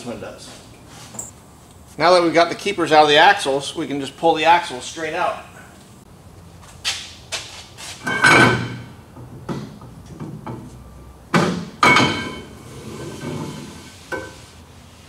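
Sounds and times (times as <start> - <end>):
axle shaft clanking metal on metal: 11.8 - 14.4.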